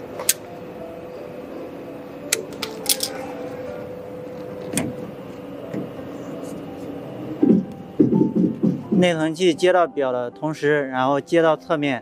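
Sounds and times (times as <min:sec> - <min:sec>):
background music: 0:05.1 - 0:12.0.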